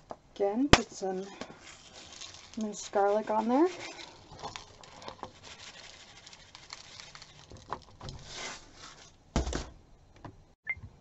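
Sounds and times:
hands tossing peppers in a bowl: 0.8s - 9.2s.

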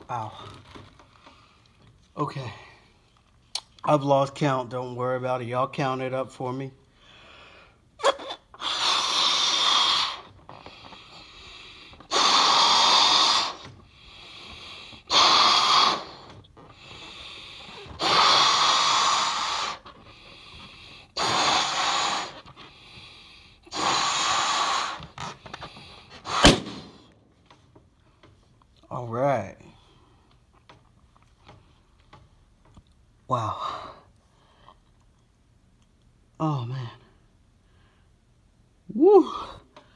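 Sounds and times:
person blowing up balloon: 8.0s - 11.3s, 12.0s - 20.3s, 21.0s - 22.6s, 23.6s - 25.4s, 26.0s - 27.1s
quick breaths in: 8.6s - 27.2s
balloon popping: 26.2s - 27.2s.

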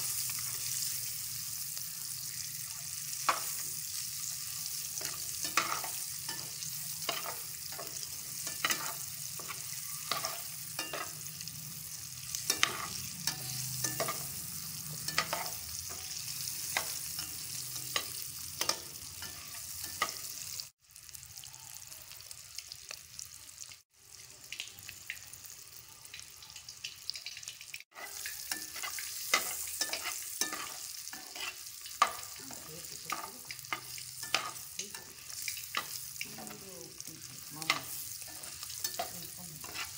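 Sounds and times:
eggs sizzling in hot oil: 0.0s - 39.9s
utensil scraping and clicking on pan: 5.0s - 11.1s, 27.9s - 36.5s, 37.6s - 39.9s.

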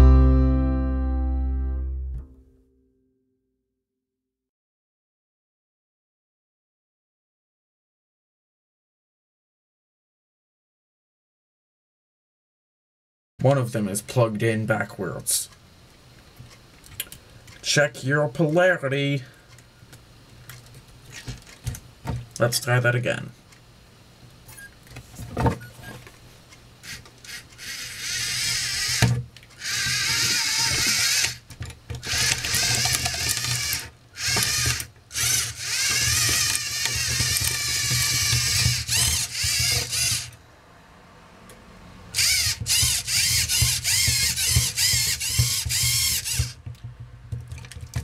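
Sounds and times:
motors whirring: 26.8s - 40.4s, 42.1s - 46.8s.

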